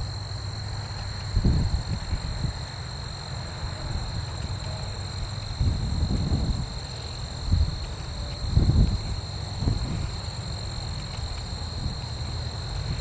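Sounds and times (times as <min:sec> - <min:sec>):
distant propeller plane engines: 0:00.0 - 0:13.0
insects buzzing in grass: 0:00.0 - 0:13.0
wind buffeting microphone: 0:01.3 - 0:02.6, 0:05.5 - 0:06.8, 0:07.4 - 0:10.2.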